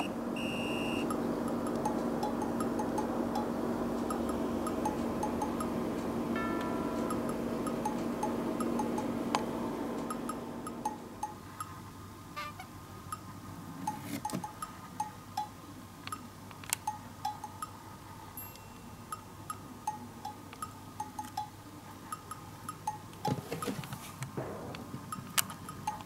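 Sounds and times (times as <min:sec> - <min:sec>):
playful bell-like tune: 0:06.4 - 0:09.1, 0:18.4 - 0:20.0.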